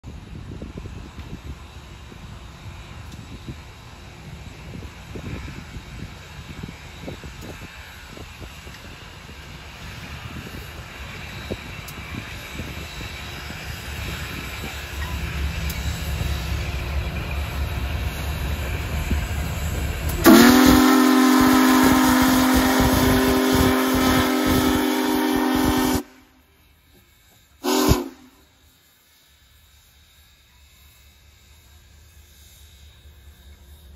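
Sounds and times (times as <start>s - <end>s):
steam locomotive rumbling: 0.0s - 33.9s
steam whistle chord: 20.2s - 26.5s, 27.6s - 28.6s.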